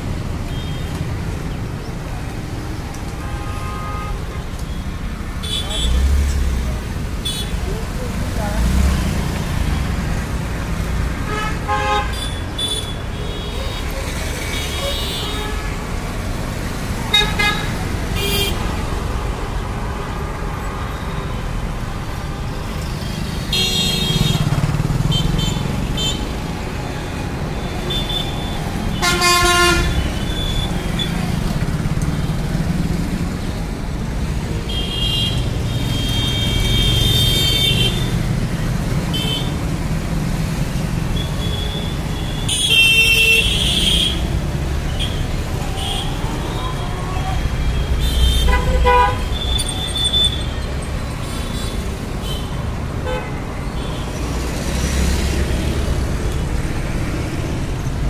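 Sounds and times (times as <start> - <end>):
traffic rumble: 0.0 - 58.0
vehicle horns honking: 3.2 - 4.4, 5.4 - 6.1, 11.3 - 13.8, 17.1 - 18.6, 27.7 - 31.2, 34.7 - 38.2, 41.2 - 44.3, 47.7 - 54.1.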